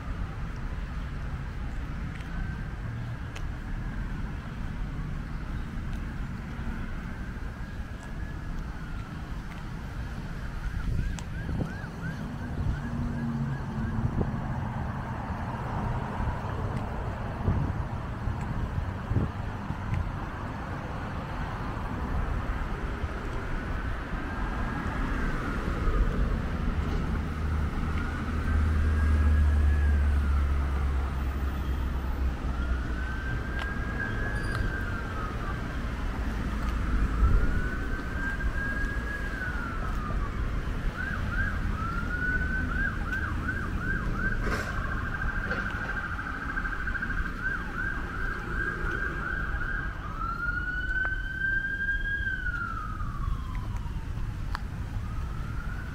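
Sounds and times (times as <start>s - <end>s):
road traffic rumble: 0.0s - 55.9s
emergency siren wailing and yelping: 1.8s - 19.8s, 20.5s - 55.9s.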